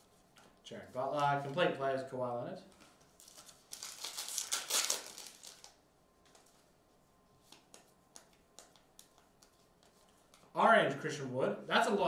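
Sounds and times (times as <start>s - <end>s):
foil wrapper crinkling: 3.2s - 5.8s.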